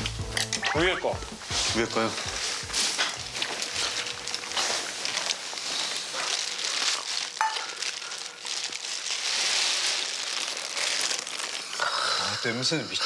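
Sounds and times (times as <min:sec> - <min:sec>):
rustling crackling noise: 0:01.3 - 0:12.8.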